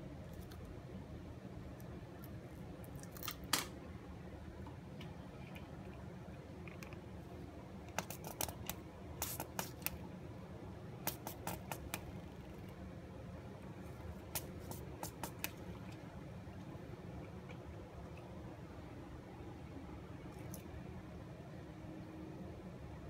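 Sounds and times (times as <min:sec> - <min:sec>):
steady low hum: 0:00.0 - 0:23.0
chameleon crunching an insect: 0:02.2 - 0:03.7, 0:07.9 - 0:10.0.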